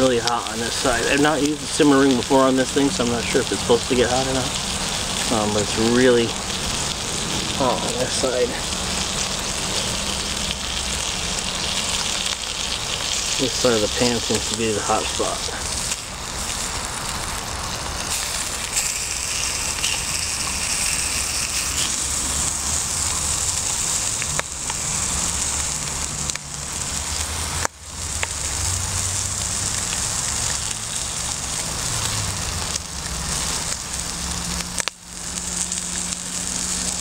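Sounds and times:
bacon sizzling and crackling: 0.0 - 37.0.

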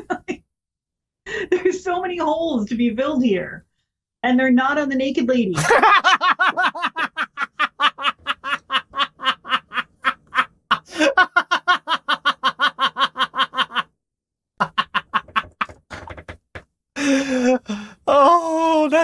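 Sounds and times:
man laughing hard: 5.6 - 13.9, 14.6 - 15.8.

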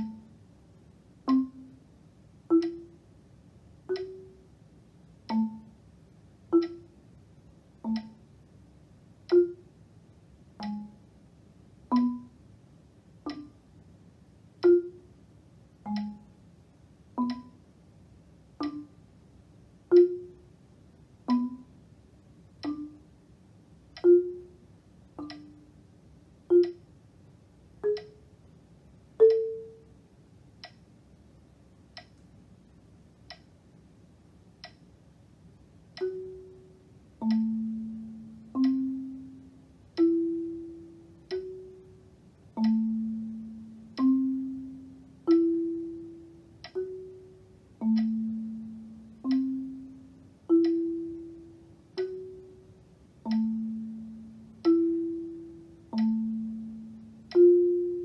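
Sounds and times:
marimba notes with yarn mallets: 0.0 - 0.3, 1.2 - 1.8, 2.5 - 3.0, 3.9 - 4.4, 5.3 - 5.8, 6.5 - 7.0, 7.8 - 8.2, 9.3 - 9.7, 10.6 - 11.0, 11.9 - 12.4, 14.6 - 15.1, 15.9 - 16.3, 17.2 - 17.6, 18.6 - 19.0, 19.9 - 20.5, 21.3 - 21.8, 22.6 - 23.0, 24.0 - 24.6, 25.2 - 25.7, 26.5 - 26.8, 27.8 - 28.2, 29.2 - 29.9, 36.0 - 58.0
faint ticks on the beat: 0.0 - 58.0.

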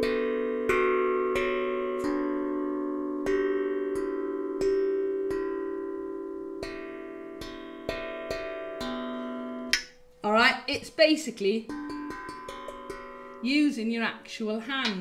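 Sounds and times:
steel tongue drum notes ringing: 0.0 - 15.0.

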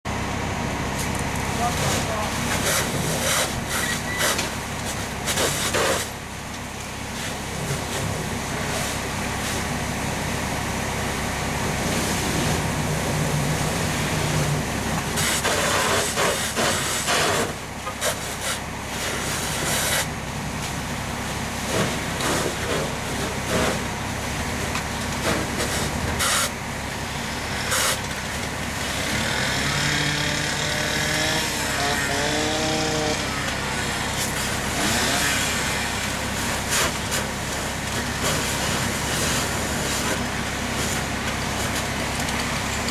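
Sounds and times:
fire engine pump running: 0.1 - 42.9.

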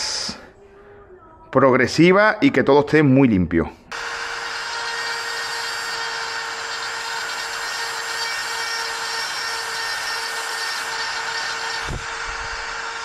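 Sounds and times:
rotary tool grinding plastic: 3.9 - 13.0.

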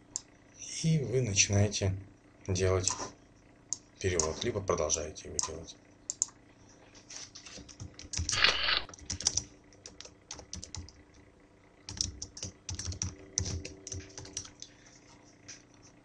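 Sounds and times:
computer keyboard typing: 7.6 - 11.0, 11.9 - 14.7.

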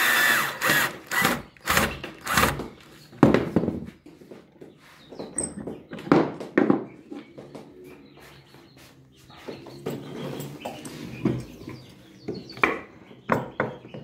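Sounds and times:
cordless drill driving screw: 0.0 - 2.7.

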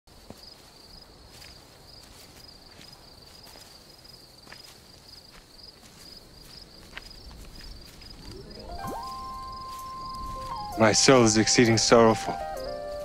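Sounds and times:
crickets chirping: 0.1 - 13.0
soft footsteps through grass: 0.1 - 13.0.

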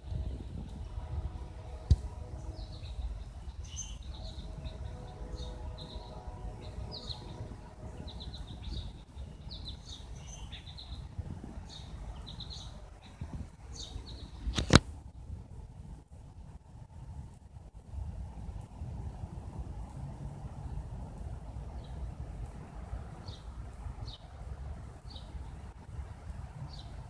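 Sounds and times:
birds chirping and singing: 2.2 - 14.4.

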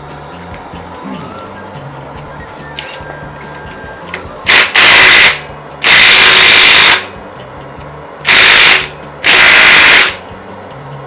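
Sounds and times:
impact wrench hammering: 4.5 - 7.2, 8.3 - 10.2.

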